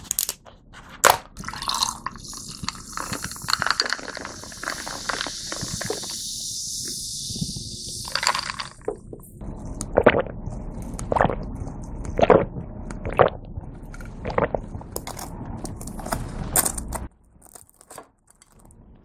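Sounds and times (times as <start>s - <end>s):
person gulping drink: 1.4s - 6.3s, 6.9s - 9.2s, 9.8s - 10.4s, 11.0s - 11.5s, 12.2s - 13.4s, 14.2s - 14.6s
carbonated drink fizzing in glass: 1.4s - 9.1s.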